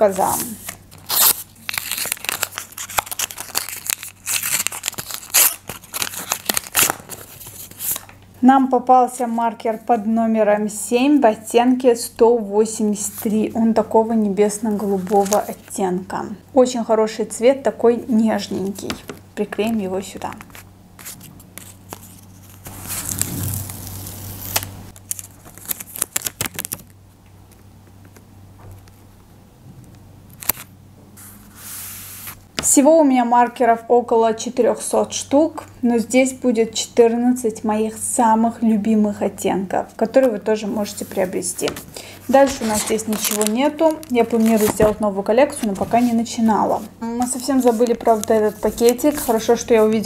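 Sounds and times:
paper rustling and crinkling: 0:00.3 - 0:08.2, 0:14.7 - 0:15.7, 0:20.3 - 0:26.9, 0:40.8 - 0:50.0.

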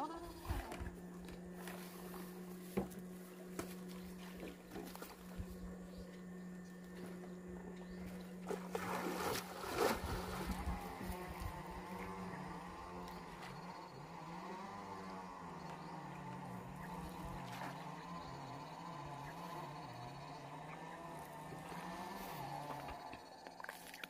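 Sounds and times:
electrofishing machine buzz: 0:00.0 - 0:24.0
water splash: 0:08.4 - 0:11.2.

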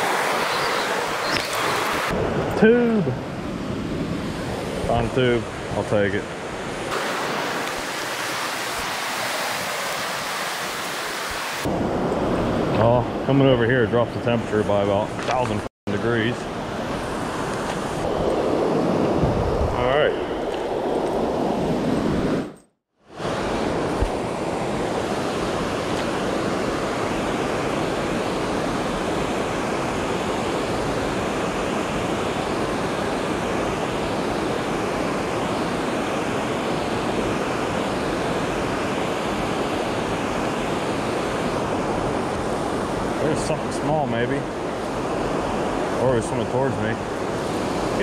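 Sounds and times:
river water rushing over dam: 0:06.8 - 0:11.7.

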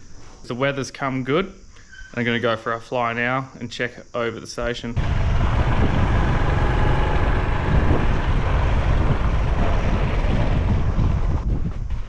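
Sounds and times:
motorbike engine running: 0:05.0 - 0:12.0
wind rumble on microphone: 0:05.0 - 0:12.0.

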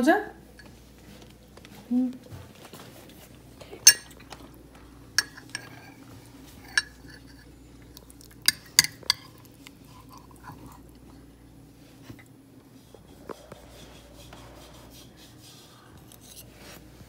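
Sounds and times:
metal spoon clinking on ceramic mug: 0:03.8 - 0:04.2, 0:05.2 - 0:05.9, 0:06.6 - 0:07.4, 0:08.4 - 0:09.3.

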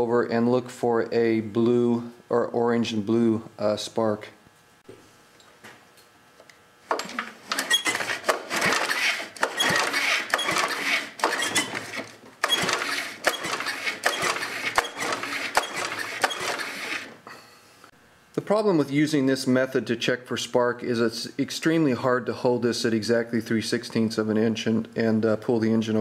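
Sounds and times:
lawn mower engine turning over: 0:06.9 - 0:17.2.

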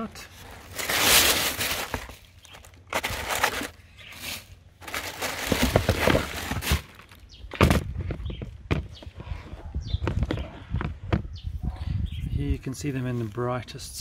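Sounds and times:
wrapping paper rustling: 0:00.3 - 0:07.2.

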